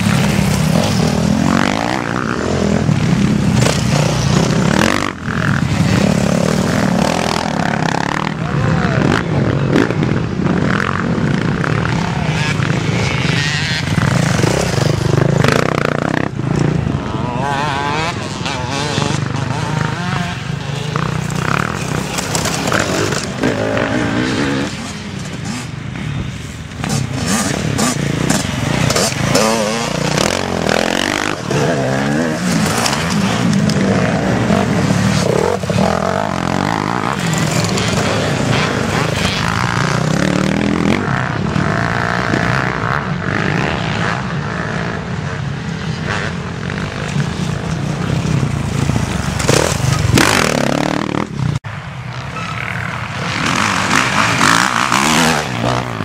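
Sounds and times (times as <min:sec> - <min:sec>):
dirt bikes revving past: 0:00.0 - 0:56.0.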